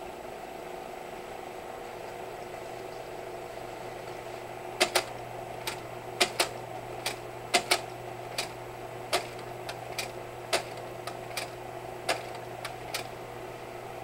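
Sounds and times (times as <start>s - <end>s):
projector cooling fan humming: 0.0s - 14.0s
slide projector mechanism clicks: 4.8s - 13.1s.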